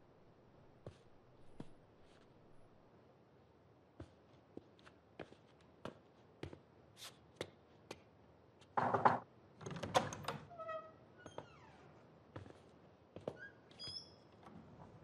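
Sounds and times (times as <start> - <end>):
soft footsteps: 12.3 - 13.4.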